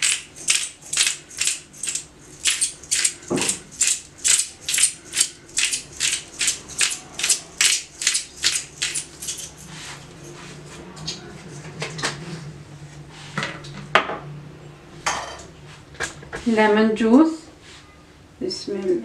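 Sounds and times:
pepper mill grinding: 0.0s - 9.7s.

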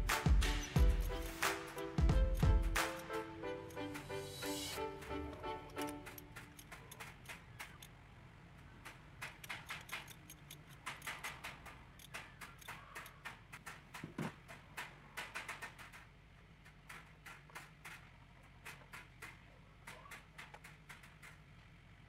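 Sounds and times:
clicks of plastic parts handled: 8.6s - 19.3s.

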